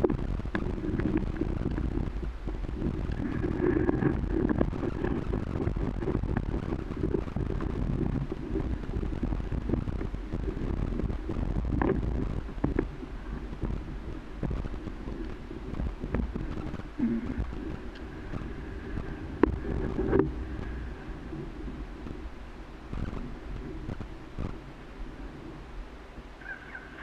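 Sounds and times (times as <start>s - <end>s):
motorcycle running at low speed: 0.0s - 24.9s
wind buffeting microphone: 0.0s - 27.0s.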